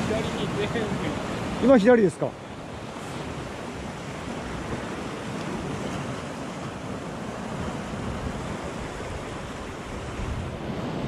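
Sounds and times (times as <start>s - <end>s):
surf breaking on rocks: 0.0s - 11.0s.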